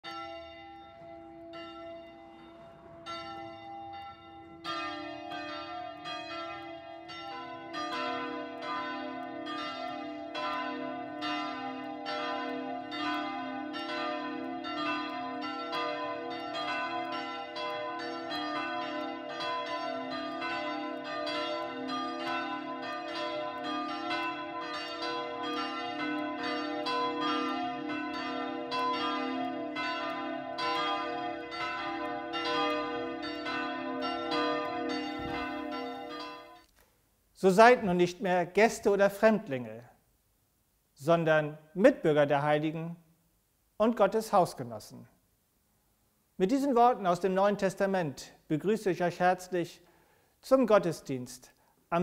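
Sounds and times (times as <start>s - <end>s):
church bells ringing: 0.0s - 36.7s.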